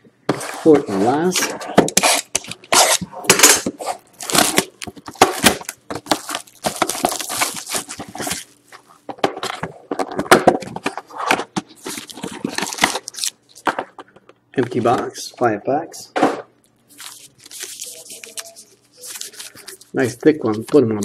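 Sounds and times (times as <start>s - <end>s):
foil packs rustling and scraping: 0.6s - 9.0s, 16.9s - 20.2s
plastic shrink-wrap crinkling and tearing: 2.0s - 8.6s, 11.8s - 13.6s, 16.7s - 20.2s.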